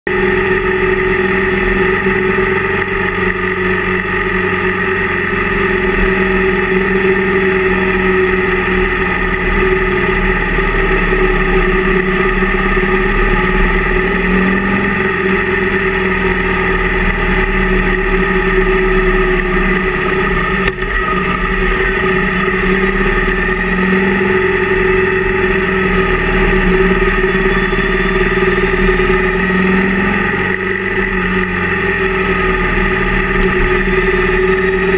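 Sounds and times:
motorcycle engine cruising: 0:00.1 - 0:34.9.

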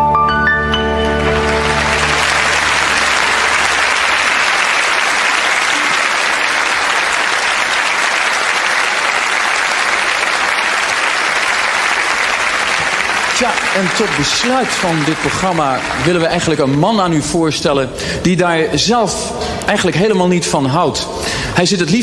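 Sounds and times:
music: 0:00.0 - 0:04.3
audience applauding: 0:01.0 - 0:17.4.

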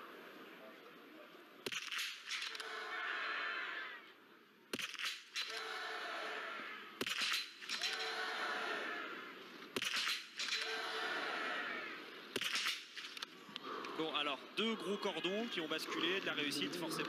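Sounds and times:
rifle shots: 0:01.6 - 0:02.7, 0:04.7 - 0:05.7, 0:07.0 - 0:08.1, 0:09.8 - 0:10.8, 0:12.3 - 0:13.2
spectators cheering: 0:02.5 - 0:04.2, 0:05.4 - 0:07.0, 0:07.7 - 0:09.5, 0:10.4 - 0:12.3.

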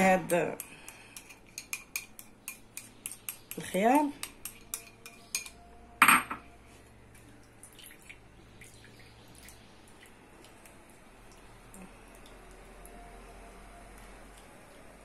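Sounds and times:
kitchenware clatter: 0:01.2 - 0:06.5
juice dripping: 0:07.1 - 0:13.1.

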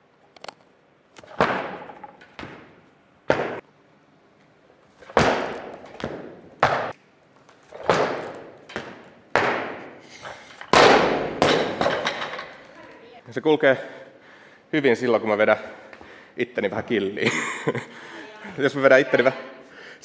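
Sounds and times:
barbell thuds and clanks: 0:10.7 - 0:12.6.

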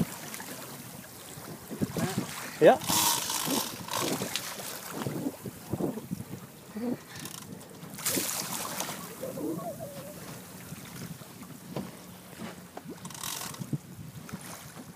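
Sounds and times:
wind buffeting microphone: 0:00.8 - 0:14.9
rushing wind gusts: 0:01.4 - 0:06.5.

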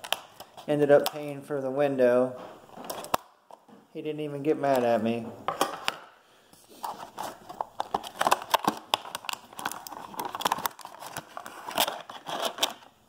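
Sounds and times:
plastic packaging crinkling: 0:06.7 - 0:13.0.

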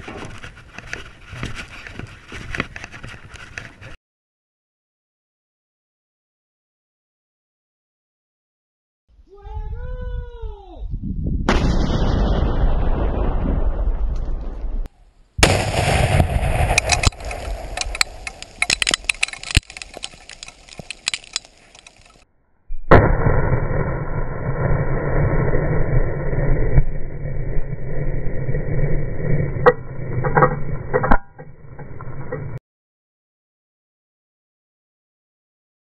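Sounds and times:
bomb blast: 0:11.4 - 0:18.6, 0:22.7 - 0:29.6
scattered sharp cracks and ticks: 0:15.4 - 0:22.2
long low rumble: 0:22.7 - 0:32.6.

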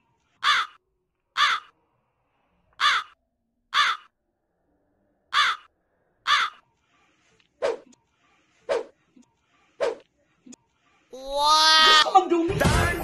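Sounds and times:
crow cawing: 0:00.4 - 0:00.8, 0:01.4 - 0:01.7, 0:02.8 - 0:04.1, 0:05.3 - 0:06.6.

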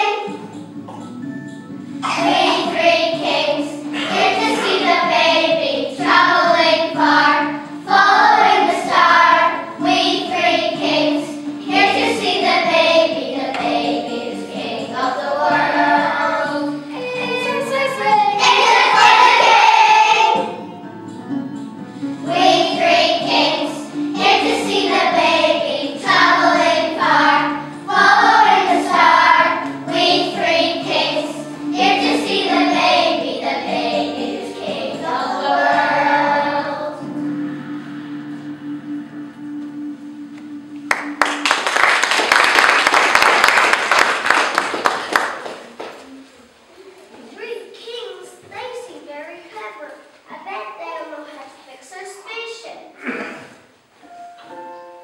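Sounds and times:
children singing in chorus: 0:02.0 - 0:20.6, 0:22.2 - 0:37.2.

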